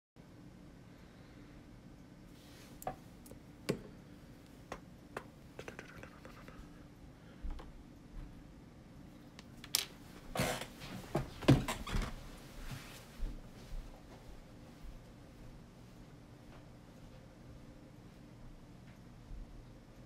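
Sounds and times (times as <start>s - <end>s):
faint steady hum: 0.2s - 20.0s
small objects clicking on desk: 9.3s - 10.0s.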